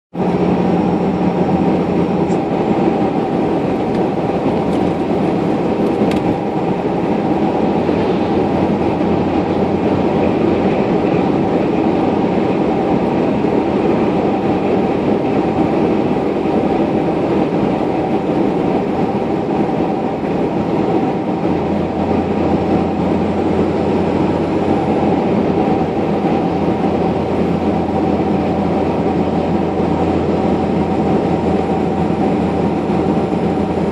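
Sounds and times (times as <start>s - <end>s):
engine and tyre rumble in cab: 0.1s - 33.9s.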